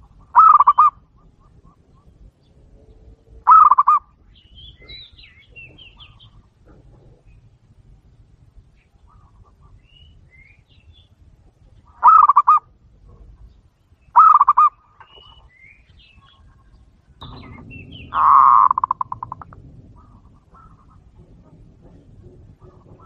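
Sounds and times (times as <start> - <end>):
dove cooing: 0.0 - 2.3, 3.4 - 4.1, 11.9 - 13.4, 14.2 - 15.4, 16.2 - 23.0.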